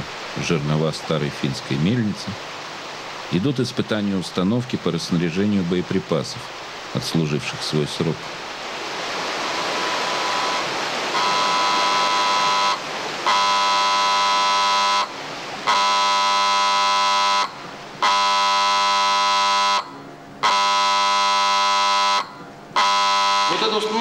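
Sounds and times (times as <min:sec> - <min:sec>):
rushing stream water: 0:00.0 - 0:24.0
electric warning buzzer: 0:09.6 - 0:23.9.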